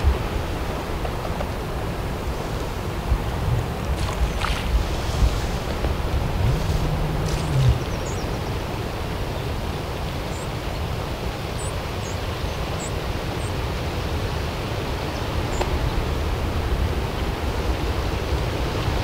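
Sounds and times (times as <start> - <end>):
outdoor rushing noise: 3.1 - 9.2
small birds chirping: 5.9 - 10.6.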